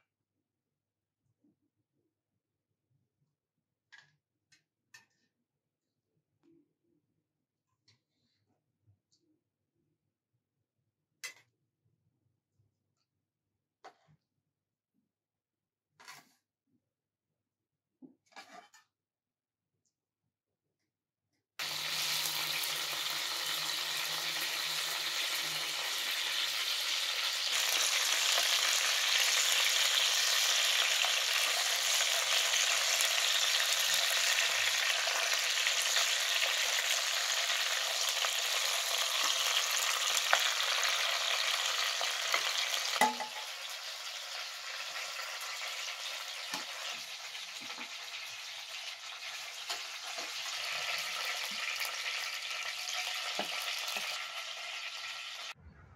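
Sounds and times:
chicken sizzling in oil: 21.6s - 55.6s.

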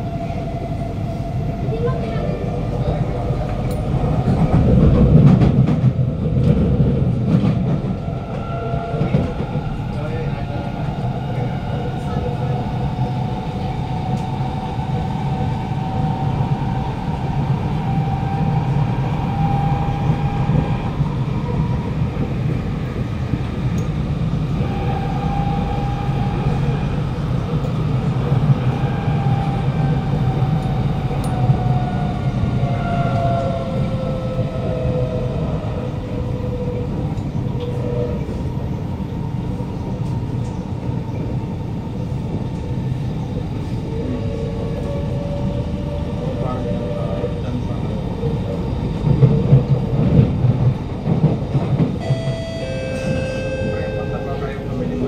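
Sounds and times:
wheels rumbling on track: 0.0s - 55.0s
train traction motor whine: 51.9s - 55.0s.

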